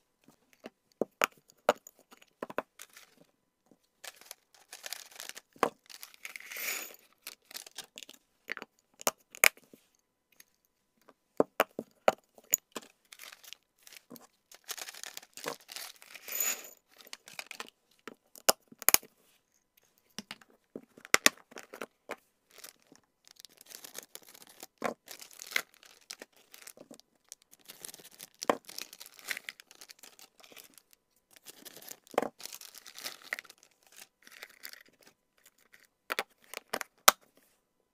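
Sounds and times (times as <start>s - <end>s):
plastic bags crinkling: 4.0s - 8.0s, 13.1s - 17.6s, 22.5s - 34.7s.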